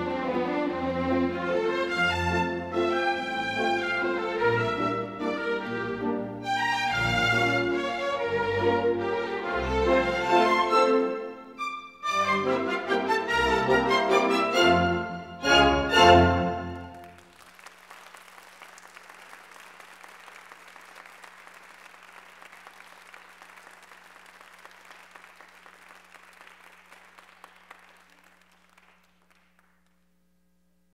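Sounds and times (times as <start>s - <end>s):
orchestral music: 0.0s - 17.2s
audience applauding: 16.5s - 30.2s.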